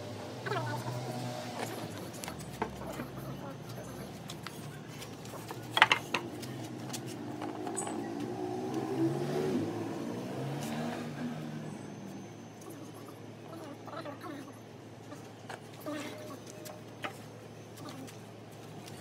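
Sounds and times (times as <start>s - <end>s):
engine hum: 0.0s - 19.0s
wooden knocks: 5.8s - 6.3s.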